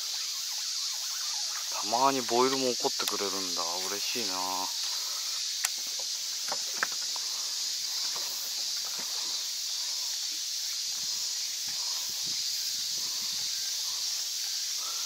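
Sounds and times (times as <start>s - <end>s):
insects singing: 0.0s - 15.0s
faint clicks: 5.6s - 7.3s.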